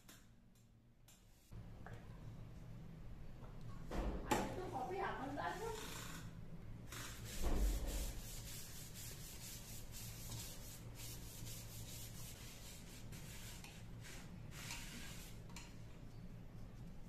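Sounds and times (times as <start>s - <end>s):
paper towel wiping wood: 7.0s - 15.3s.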